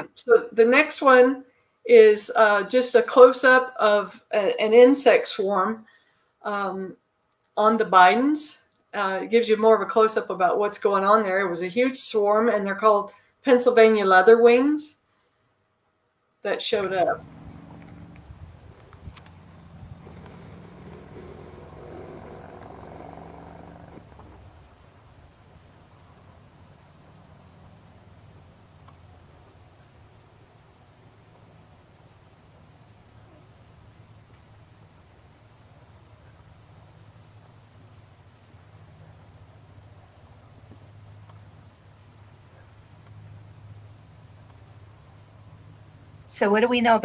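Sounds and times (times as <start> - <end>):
low hum: 16.8 - 26.9
insects trilling: 16.8 - 46.4.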